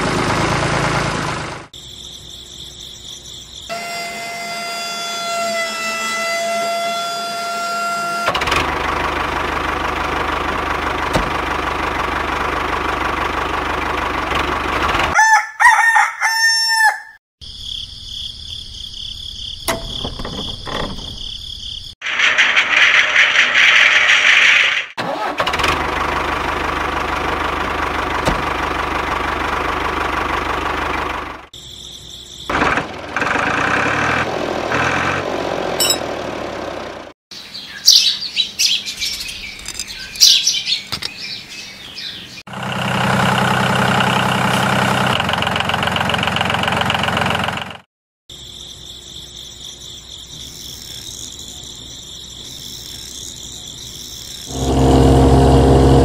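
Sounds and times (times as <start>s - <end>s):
tractor engine running: 0.0s - 1.8s, 8.2s - 15.2s, 22.0s - 31.6s, 32.5s - 37.1s, 42.5s - 47.9s, 54.5s - 56.0s
birds chirping: 37.3s - 42.4s.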